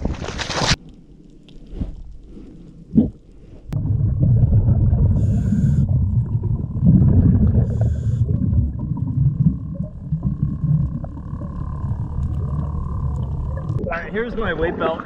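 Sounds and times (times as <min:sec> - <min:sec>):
underwater rush of water: 0:03.8 - 0:15.0.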